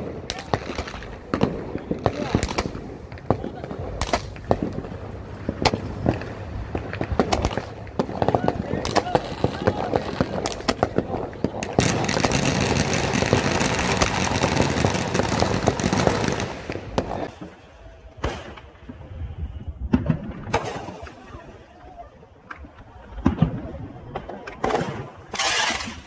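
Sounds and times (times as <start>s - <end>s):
firework pops: 0.0s - 17.6s
fireworks hissing and crackling: 0.0s - 19.3s, 20.0s - 21.7s, 24.1s - 26.0s.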